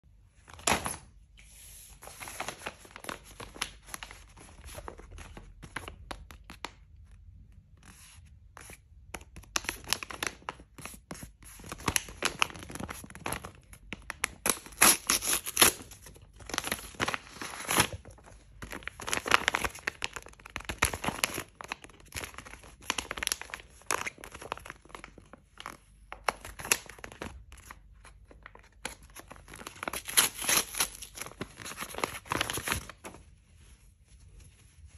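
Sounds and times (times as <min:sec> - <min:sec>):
paper tearing and crinkling: 0:14.5 - 0:18.2, 0:29.5 - 0:33.1.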